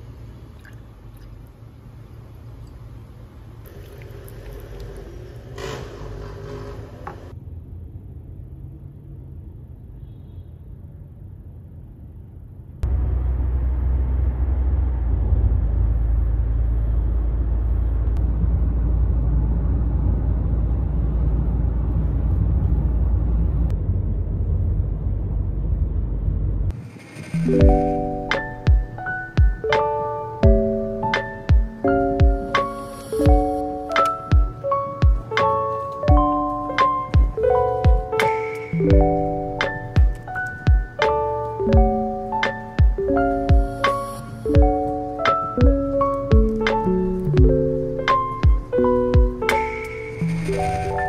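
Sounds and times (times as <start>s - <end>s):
milk pouring into glass: 3.7s - 5.1s
car cabin road rumble: 12.8s - 26.8s.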